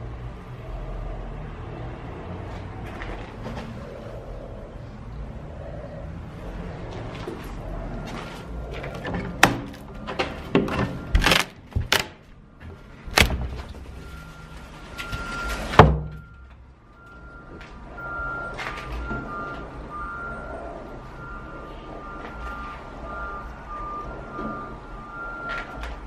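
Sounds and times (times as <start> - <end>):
sharp knocks and clunks: 8.7 - 13.8, 15.7 - 16.4.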